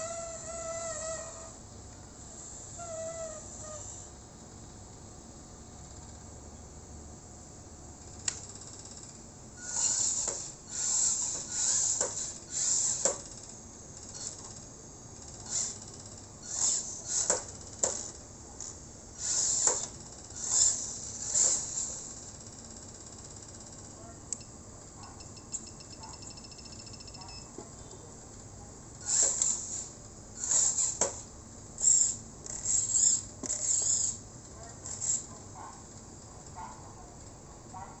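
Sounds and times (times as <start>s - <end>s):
small electric motor whirring: 9.6s - 14.6s, 15.2s - 18.2s, 19.2s - 22.3s, 29.0s - 34.2s, 34.9s - 35.3s.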